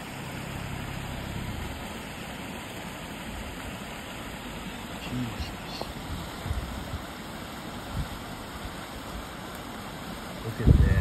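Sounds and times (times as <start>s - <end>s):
creek rushing over rocks: 0.0s - 11.0s
low rumble: 0.1s - 2.0s.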